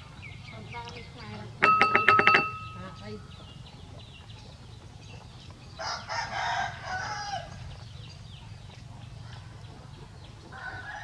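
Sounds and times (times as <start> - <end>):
rooster crowing: 5.8 - 7.6, 10.5 - 11.0.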